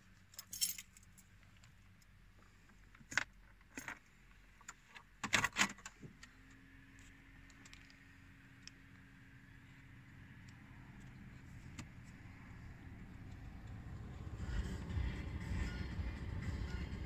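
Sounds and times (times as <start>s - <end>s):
keys jangling: 0.3s - 1.2s.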